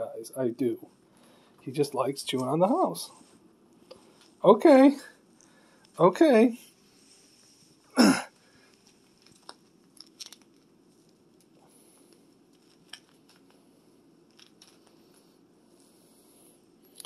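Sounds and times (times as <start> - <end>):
low steady hum: 0.0 - 17.0
squirrel scrabbling on tile floor: 8.6 - 11.6.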